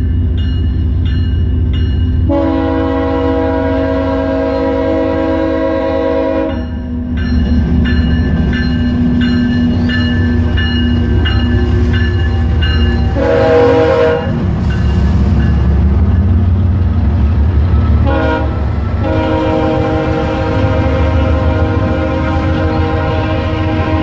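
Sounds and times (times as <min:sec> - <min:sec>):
locomotive bell ringing: 0:00.0 - 0:02.6, 0:06.2 - 0:16.8
diesel locomotive engine rumble: 0:00.0 - 0:24.0
train air horn blasts: 0:02.3 - 0:06.7, 0:13.1 - 0:15.1, 0:18.0 - 0:24.0.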